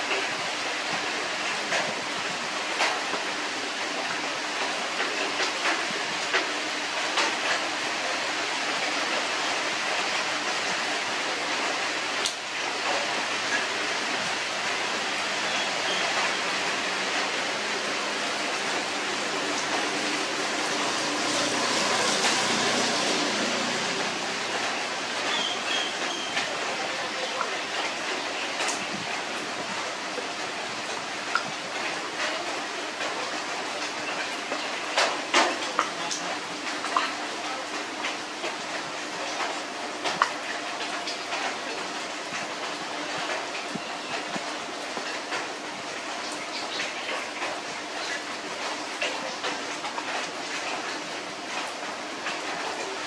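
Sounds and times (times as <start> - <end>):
rain falling: 0.0 - 53.0.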